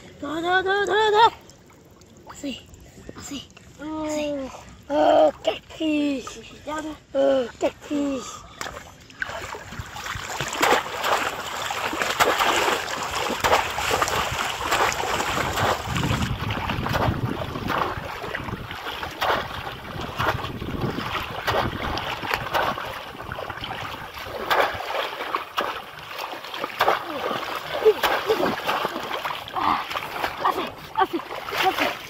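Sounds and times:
water splashing and sloshing: 0.0 - 32.0
wind noise on microphone: 13.5 - 24.9.

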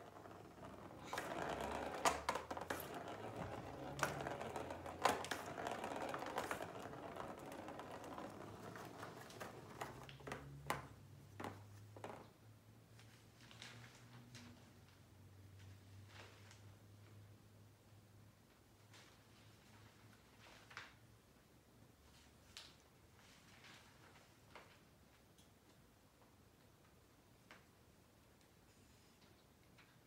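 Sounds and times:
plastic ball rolling and rattling: 0.0 - 12.4.

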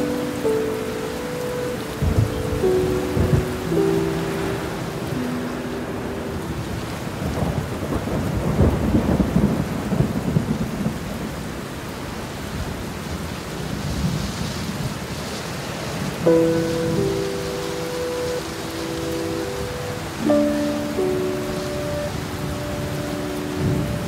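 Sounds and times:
steady rain: 0.0 - 24.0
thunder rumbling: 1.8 - 11.6.

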